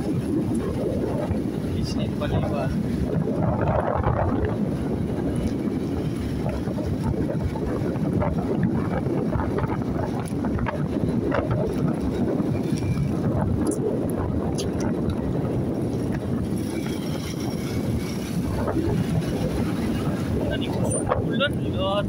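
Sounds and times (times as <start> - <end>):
road and engine rumble: 0.0 - 22.0
wind buffeting microphone: 0.0 - 22.0.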